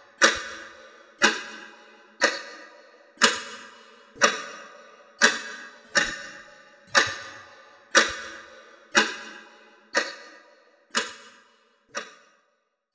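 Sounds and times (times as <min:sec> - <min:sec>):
alarm clock ticking: 0:04.2 - 0:09.2.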